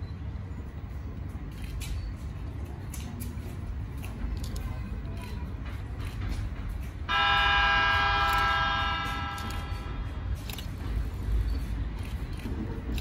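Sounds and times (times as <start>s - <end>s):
low rumble of approaching train: 0.0s - 13.0s
train horn: 7.1s - 10.2s.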